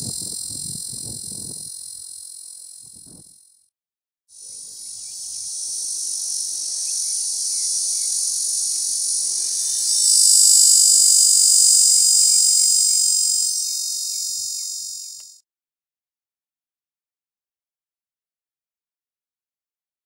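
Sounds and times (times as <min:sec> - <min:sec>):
cicada buzzing: 0:00.0 - 0:03.4, 0:04.4 - 0:15.4.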